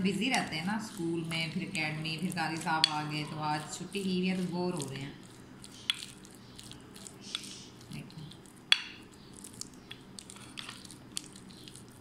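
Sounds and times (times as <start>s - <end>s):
spoon squishing food filling: 0.0s - 12.0s.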